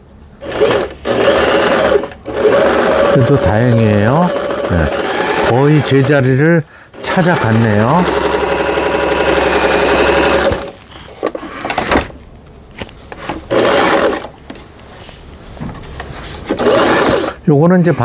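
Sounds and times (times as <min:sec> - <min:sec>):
sewing machine stitching: 0:00.4 - 0:06.2, 0:06.9 - 0:10.8, 0:13.3 - 0:14.4, 0:16.5 - 0:17.4.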